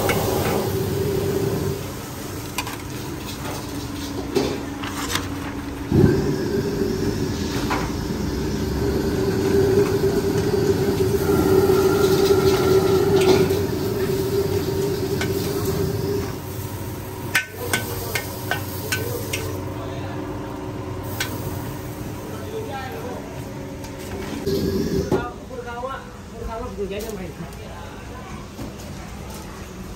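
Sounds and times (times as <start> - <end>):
wok burner roaring: 0.0 - 28.2
noodles frying: 9.2 - 19.7.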